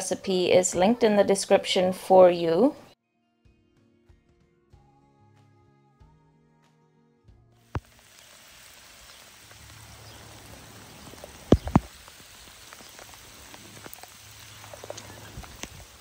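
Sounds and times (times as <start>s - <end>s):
rain falling: 7.7s - 16.0s
sharp taps of raindrops: 7.8s - 16.0s.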